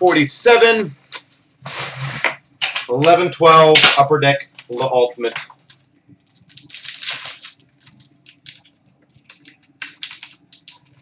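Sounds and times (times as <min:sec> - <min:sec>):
card pack wrapper crinkling: 0:00.0 - 0:01.4, 0:04.4 - 0:11.0.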